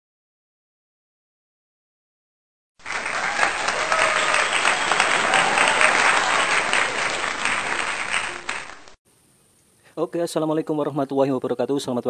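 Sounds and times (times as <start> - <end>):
crowd applause: 2.8 - 9.0.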